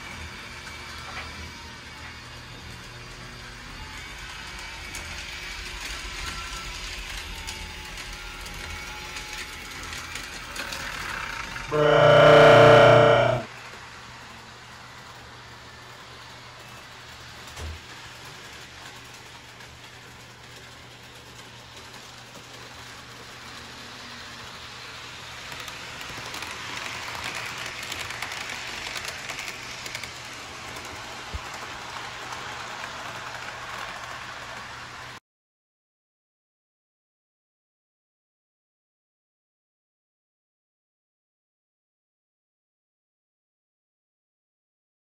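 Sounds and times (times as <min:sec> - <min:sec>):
model train motor hum: 0:00.0 - 0:35.1
wheels rolling on rails: 0:00.0 - 0:35.2.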